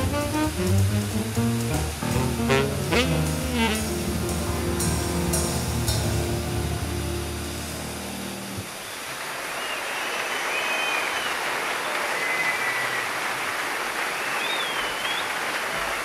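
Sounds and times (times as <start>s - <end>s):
waterfall rushing: 1.9s - 9.6s.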